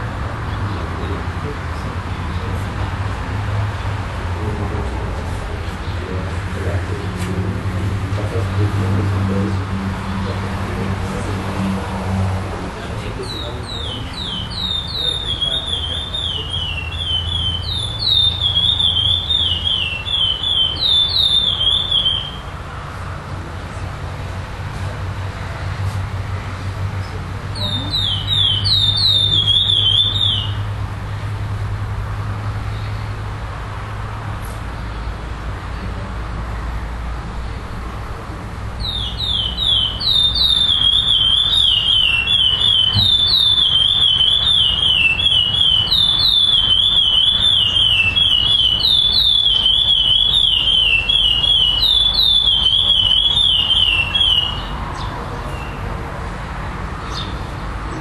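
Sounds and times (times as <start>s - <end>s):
finch singing whistled notes: 13.2s - 22.4s, 27.6s - 30.6s, 38.8s - 55.8s.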